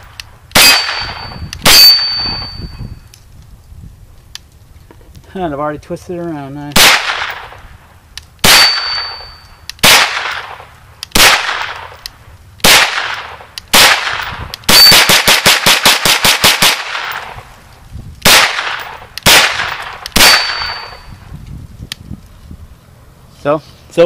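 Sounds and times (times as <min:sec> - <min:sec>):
carbine gunshots: 0:00.5 - 0:02.4, 0:06.7 - 0:07.6, 0:08.4 - 0:12.0, 0:12.6 - 0:17.4, 0:18.2 - 0:21.1.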